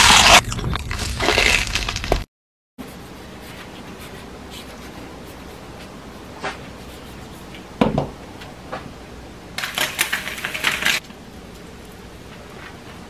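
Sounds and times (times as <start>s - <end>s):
knock on cutting board: 7.8s - 8.1s.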